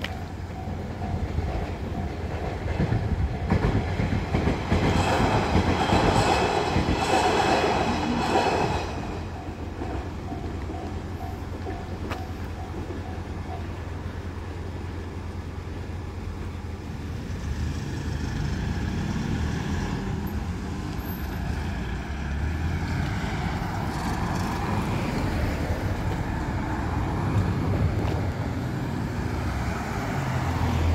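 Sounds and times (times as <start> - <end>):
crossing warning bell ringing: 0.0 - 3.6, 8.1 - 15.1
vehicles pulling away: 0.0 - 30.9.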